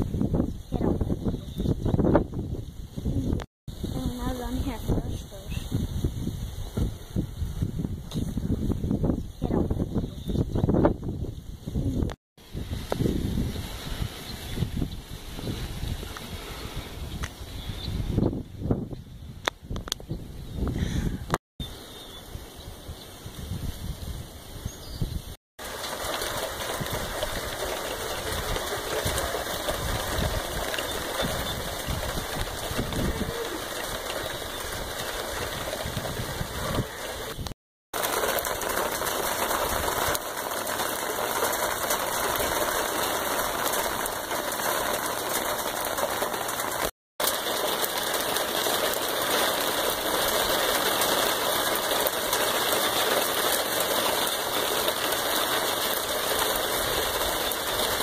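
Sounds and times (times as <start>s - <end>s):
heavy rain pattering on concrete: 25.6s - 58.0s.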